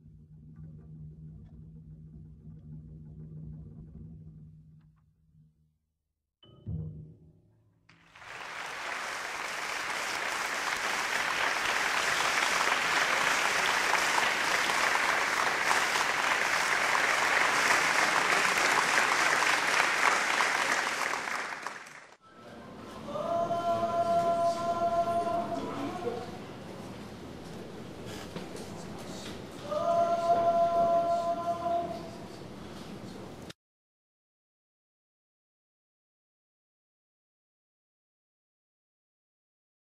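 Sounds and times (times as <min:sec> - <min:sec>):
audience applauding: 0:07.9 - 0:22.2.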